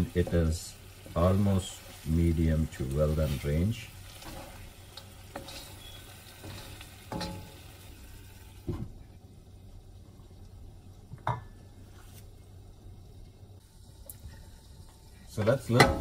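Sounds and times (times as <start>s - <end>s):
meat sizzling: 0.0s - 16.0s
wooden spoon scraping pan: 4.1s - 4.7s, 5.3s - 7.5s.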